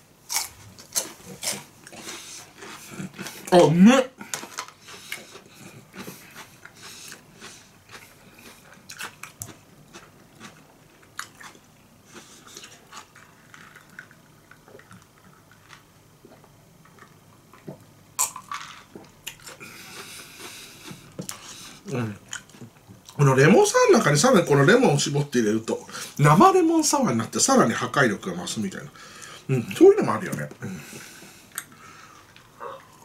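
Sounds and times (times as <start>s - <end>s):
chewing cucumber: 0.3s - 3.5s, 4.3s - 18.3s, 18.9s - 23.2s.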